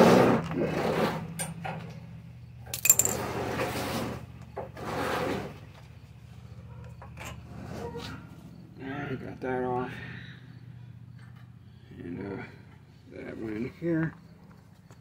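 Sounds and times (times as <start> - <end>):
ringing metal clink: 2.7 - 3.2
hand tools clattering and scraping: 2.7 - 5.6
steady low hum: 8.2 - 15.0.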